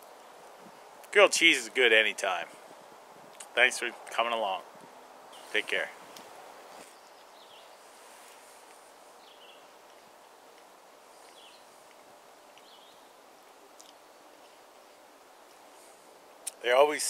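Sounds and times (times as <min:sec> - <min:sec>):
small bird chirping: 0:06.7 - 0:08.0, 0:09.2 - 0:10.2, 0:11.2 - 0:14.5.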